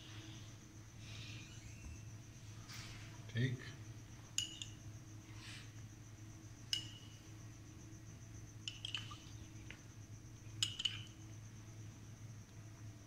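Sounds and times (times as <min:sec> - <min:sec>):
faint high whine: 0:00.0 - 0:13.0
metal spoon clinking ceramic cup: 0:04.4 - 0:04.8, 0:10.6 - 0:11.1.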